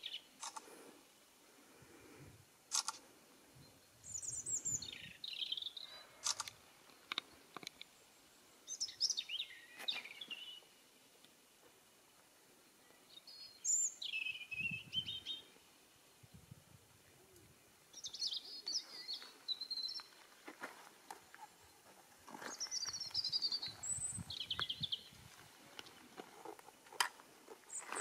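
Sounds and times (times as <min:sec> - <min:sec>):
robin singing: 0:00.0 - 0:00.3, 0:03.6 - 0:06.1, 0:07.1 - 0:10.8, 0:12.8 - 0:15.6, 0:17.9 - 0:20.2, 0:22.4 - 0:26.1.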